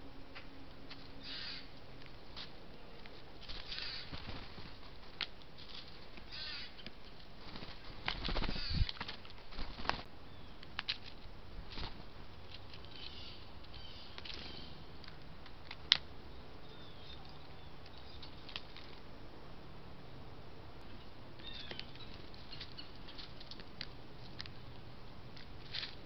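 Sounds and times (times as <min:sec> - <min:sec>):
birds pecking on wood: 0:03.0 - 0:16.1, 0:17.4 - 0:19.0, 0:21.4 - 0:26.0
wingbeats: 0:03.5 - 0:04.9, 0:06.2 - 0:10.1
faint high bird chirps: 0:16.3 - 0:18.5, 0:20.9 - 0:23.2.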